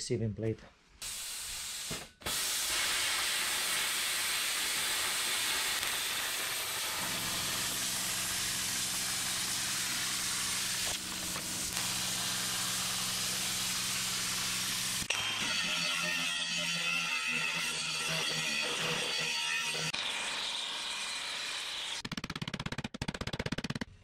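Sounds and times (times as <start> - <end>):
plasma cutter hissing: 1.0 - 15.1.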